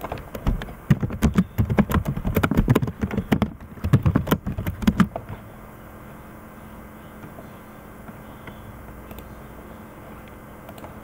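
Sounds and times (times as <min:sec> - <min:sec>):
typing on computer keyboard: 0:00.0 - 0:05.2.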